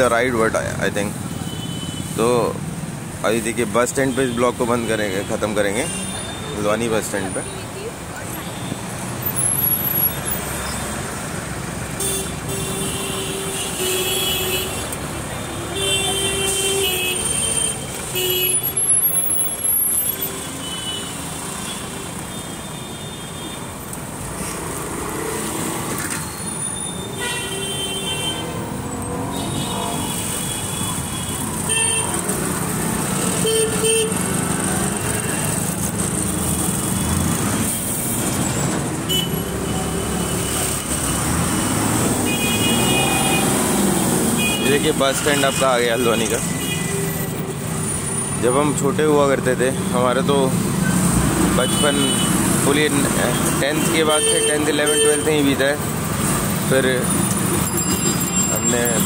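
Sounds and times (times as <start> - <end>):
vehicle engines passing: 5.4 - 13.4, 23.7 - 59.0
car horn honks: 27.1 - 28.6, 42.2 - 43.7.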